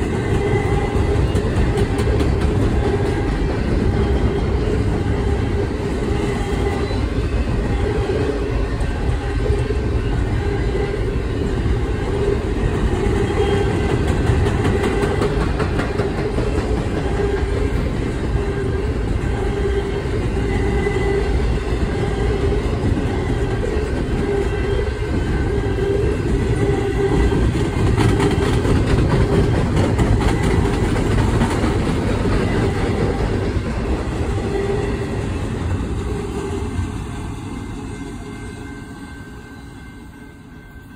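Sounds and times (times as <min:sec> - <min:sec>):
steel wheels rumbling on rails: 0:00.0 - 0:40.9.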